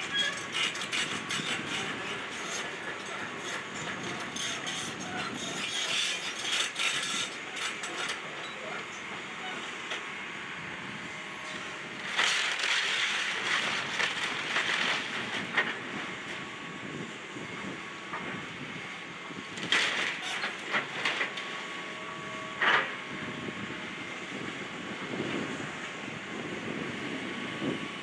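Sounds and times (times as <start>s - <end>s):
machine noise with faint whine: 0.0s - 28.0s
debris crunching and cracking: 12.0s - 15.8s, 19.6s - 21.3s.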